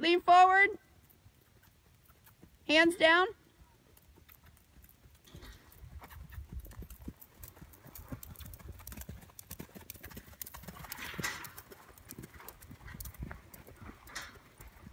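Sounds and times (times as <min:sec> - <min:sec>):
horse hoofbeats on sand: 0:04.1 - 0:14.9.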